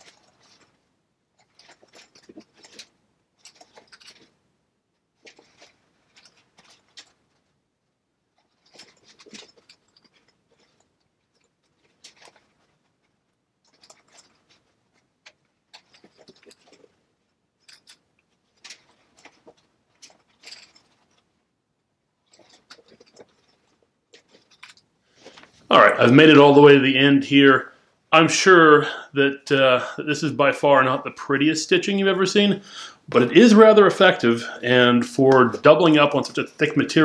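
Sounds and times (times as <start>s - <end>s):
canvas rustling and scratching: 0.0s - 4.4s, 5.0s - 7.6s, 8.3s - 21.4s, 22.2s - 26.0s.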